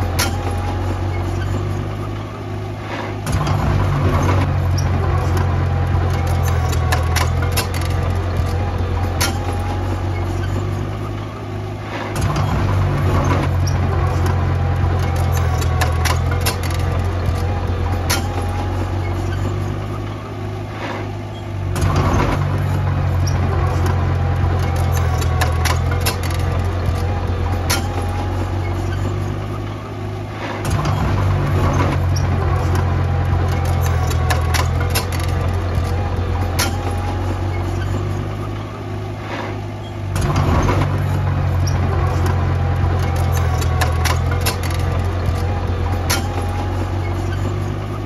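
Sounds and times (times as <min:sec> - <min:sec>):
bulldozer diesel engine droning: 0:00.0 - 0:48.0
sharp metal clanks: 0:03.0 - 0:11.0, 0:11.9 - 0:19.7, 0:23.2 - 0:29.3, 0:30.4 - 0:38.4, 0:39.3 - 0:47.7.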